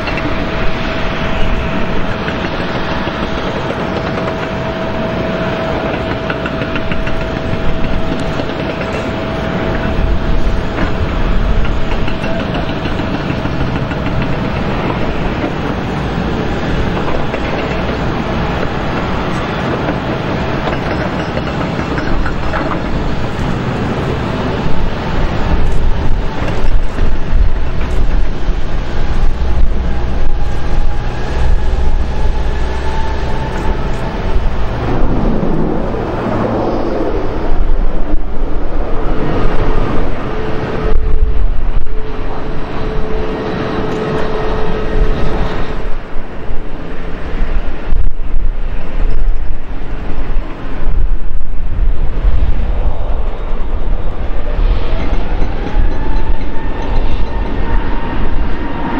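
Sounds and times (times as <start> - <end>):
deep uneven rumble: 0.0 - 46.7
turboprop engines droning: 0.0 - 58.9.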